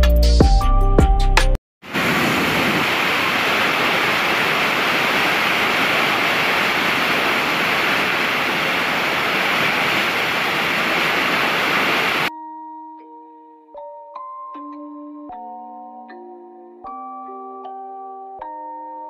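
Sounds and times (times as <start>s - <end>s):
waterfall rushing: 1.9s - 12.3s.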